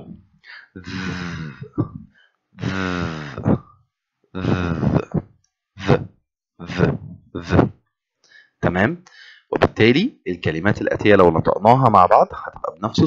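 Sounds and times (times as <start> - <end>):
person making buzzing th sound: 0.0 - 3.7, 4.4 - 7.8.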